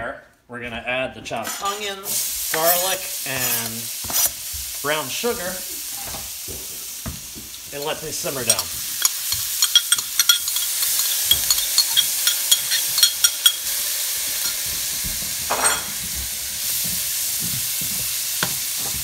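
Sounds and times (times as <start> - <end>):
food sizzling in a frying pan: 1.4 - 19.0
spatula stirring in pan: 1.5 - 15.4
oil popping and crackling: 1.8 - 19.0.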